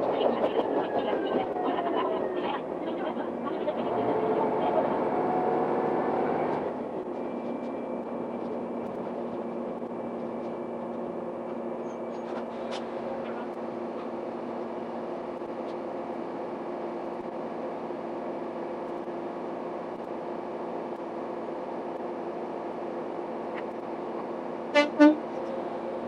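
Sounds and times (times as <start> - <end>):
diesel railcar running noise: 0.0 - 26.0.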